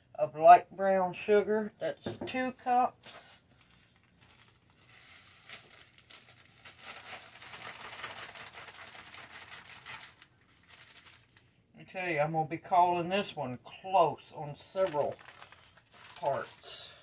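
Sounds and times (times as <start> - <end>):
plastic bag crinkling: 3.5 - 11.6, 14.6 - 17.0.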